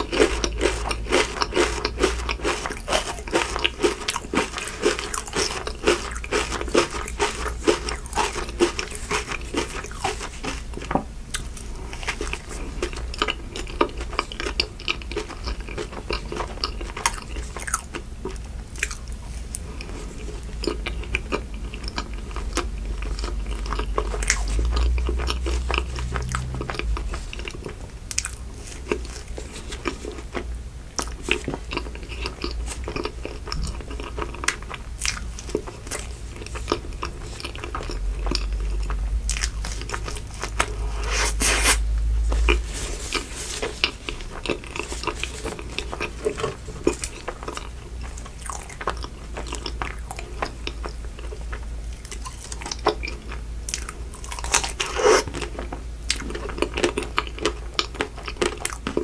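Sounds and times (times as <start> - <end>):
biting and chewing: 0.0 - 59.0.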